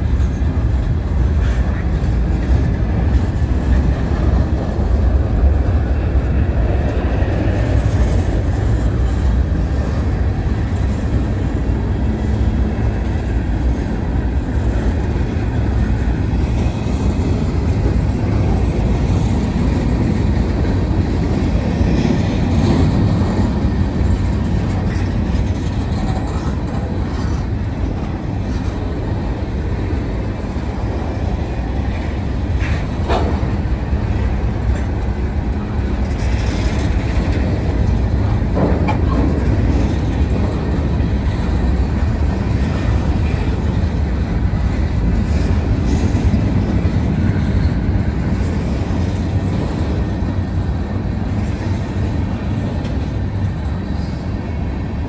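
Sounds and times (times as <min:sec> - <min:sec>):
freight train rolling past: 0:00.0 - 0:55.0
wheels clacking over rail: 0:06.6 - 0:51.8.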